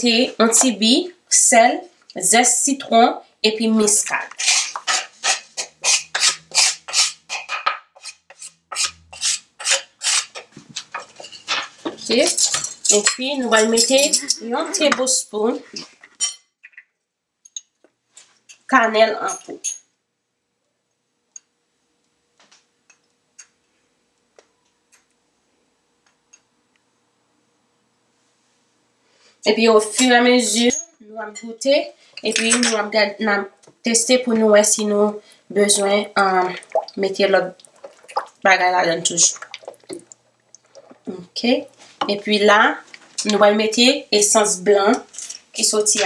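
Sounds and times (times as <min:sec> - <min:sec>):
wooden spoon scraping cutting board: 0:04.1 - 0:12.4.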